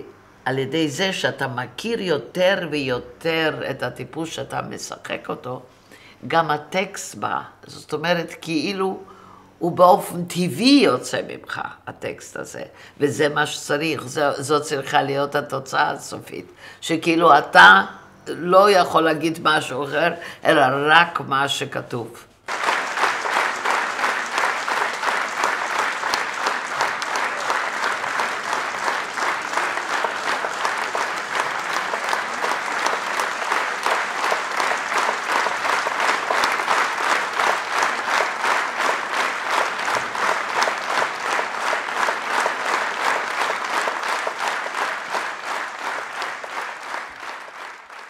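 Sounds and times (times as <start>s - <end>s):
audience applauding: 22.5s - 48.0s.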